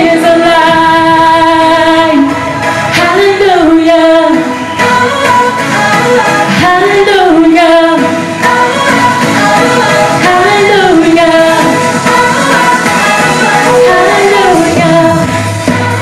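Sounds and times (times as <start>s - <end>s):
person singing worship song: 0.0s - 16.0s.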